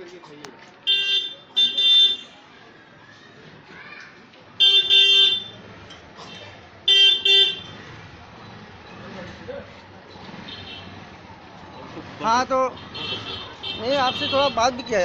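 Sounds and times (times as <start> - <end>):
vehicle horn honking: 0.9 - 2.3, 4.6 - 5.5, 6.3 - 7.8, 12.7 - 14.9.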